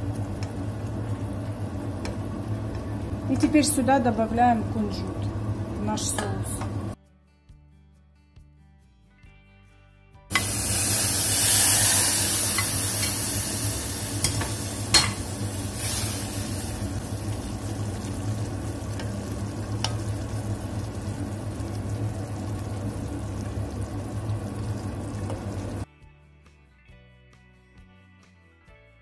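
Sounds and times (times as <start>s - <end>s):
sizzling sauce in pot: 0.0s - 3.9s, 10.3s - 25.9s.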